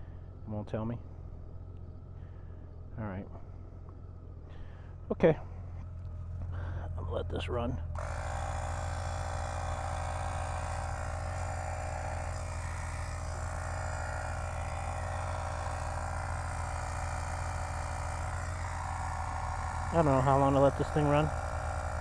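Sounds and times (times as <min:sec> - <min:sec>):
air compressor buzzing drone: 0:07.8 - 0:22.0.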